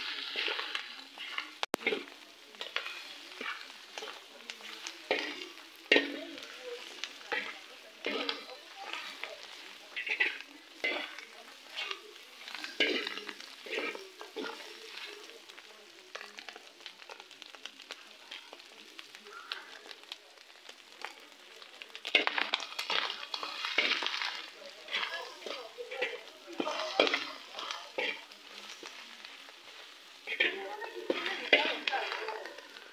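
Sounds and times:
metal spatula scraping pan: 0:00.0 - 0:15.1, 0:22.1 - 0:32.2
tripe and onions sizzling: 0:00.0 - 0:32.9.

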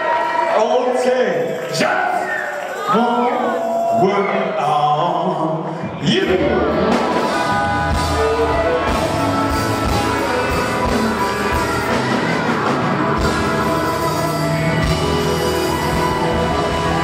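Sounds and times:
electric guitar: 0:06.3 - 0:17.0
steady drum beat: 0:06.6 - 0:17.0.

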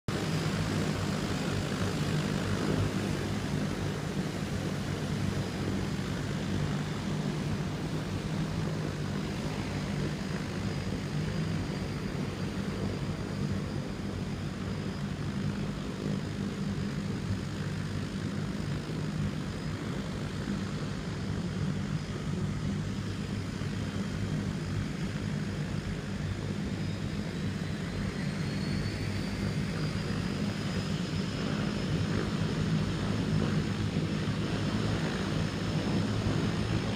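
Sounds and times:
propeller engine droning: 0:00.1 - 0:36.9
faint high whine: 0:00.2 - 0:36.9.

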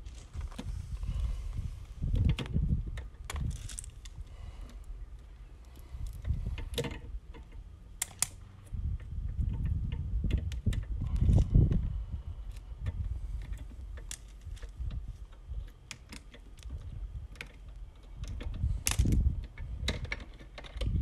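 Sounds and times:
clicks of cutters and wire: 0:08.0 - 0:08.4.

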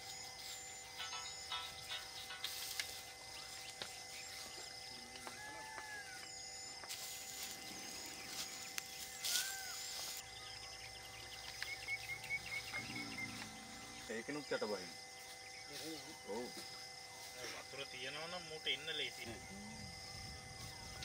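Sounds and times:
steady drone: 0:00.0 - 0:17.6
birds chirping: 0:00.0 - 0:21.0
bird whistled calls: 0:09.0 - 0:13.5.

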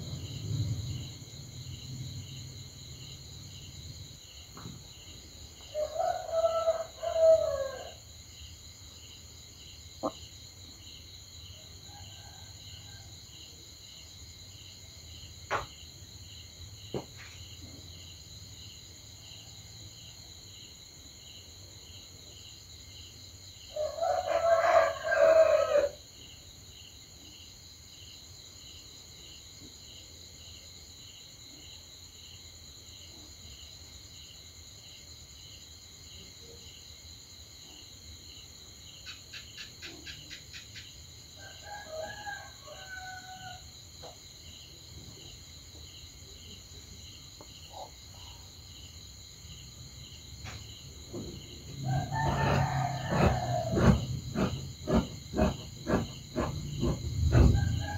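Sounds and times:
crickets chirping: 0:00.0 - 0:57.9
rooster crowing: 0:05.7 - 0:08.1, 0:11.6 - 0:13.1, 0:23.7 - 0:26.0, 0:41.4 - 0:43.8, 0:51.7 - 0:57.9.

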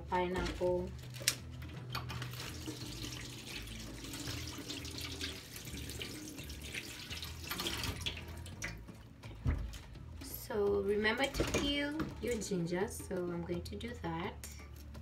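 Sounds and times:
tap water running into sink: 0:01.7 - 0:08.9.

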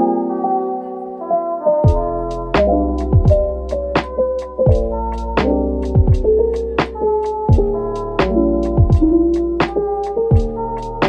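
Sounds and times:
instrumental music with steady beat: 0:01.7 - 0:11.0.

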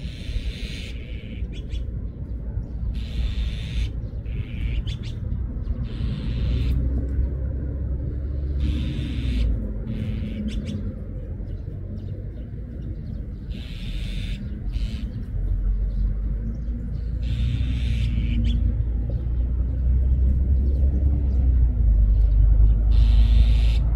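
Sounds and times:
magpies giving harsh calls: 0:00.0 - 0:02.0, 0:02.9 - 0:06.9, 0:08.1 - 0:11.0, 0:13.0 - 0:15.5, 0:17.0 - 0:18.8, 0:22.9 - 0:23.9
steady low rumble: 0:00.0 - 0:23.9.

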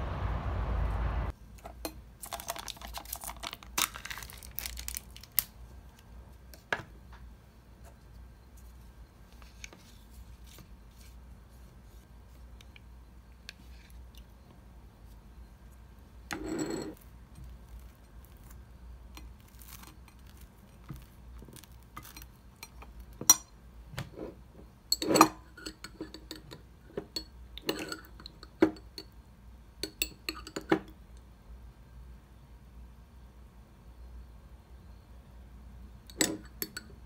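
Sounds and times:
dishes and cutlery clinking: 0:24.9 - 0:29.1.

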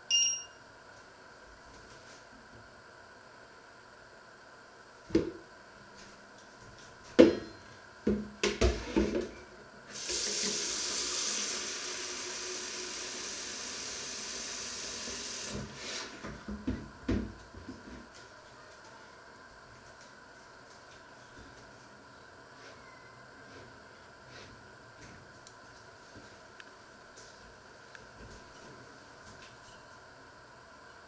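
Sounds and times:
tap water running into jug: 0:09.9 - 0:15.8.

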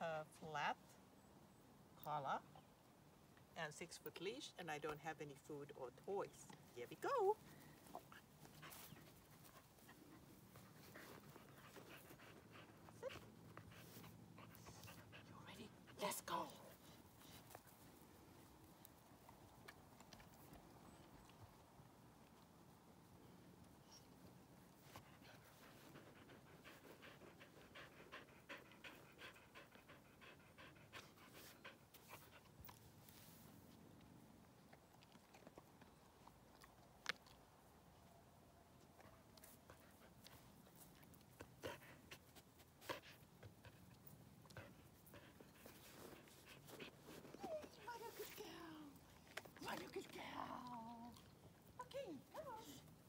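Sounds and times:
dog panting: 0:06.4 - 0:21.5, 0:24.7 - 0:33.0, 0:38.8 - 0:53.0
dog whining: 0:47.2 - 0:48.2.

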